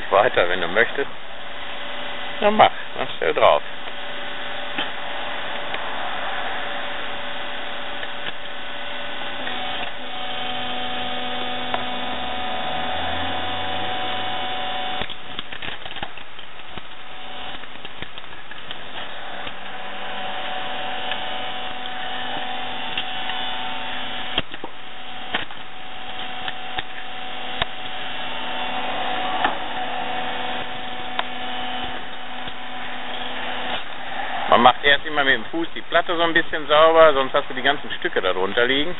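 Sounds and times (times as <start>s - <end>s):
log splitter motor humming: 0.0s - 38.9s
logs knocking and cracking: 7.7s - 8.6s, 14.9s - 29.8s.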